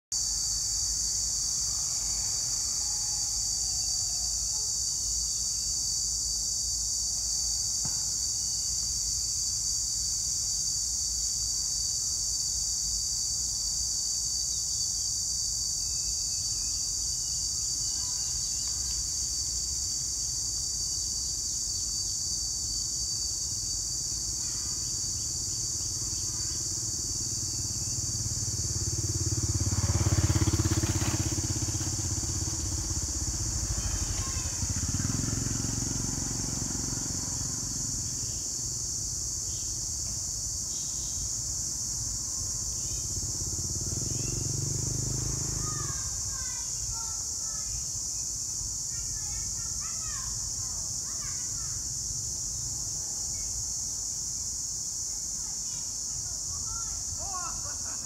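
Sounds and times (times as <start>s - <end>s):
insects droning: 0.1s - 58.0s
motorcycle engine approaching: 1.3s - 4.0s, 24.2s - 40.1s, 40.7s - 46.9s.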